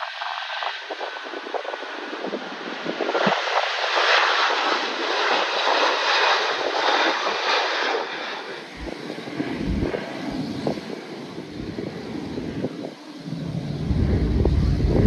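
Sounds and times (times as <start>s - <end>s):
jet engines roaring: 0.0s - 15.0s
wind buffeting microphone: 0.0s - 15.0s.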